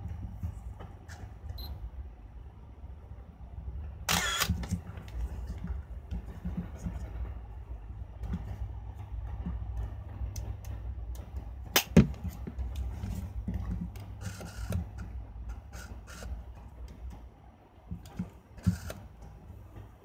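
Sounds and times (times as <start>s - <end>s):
steady low hum: 0.0s - 20.0s
short mechanical bursts: 4.1s - 4.6s, 15.7s - 16.4s, 18.2s - 19.0s
camera shutter clicks: 4.1s - 4.7s.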